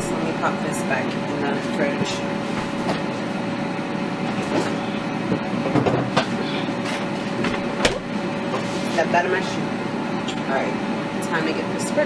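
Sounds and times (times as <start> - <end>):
kitchen appliance fan whooshing: 0.0 - 12.0
kitchen handling knocks and clatters: 4.5 - 6.4.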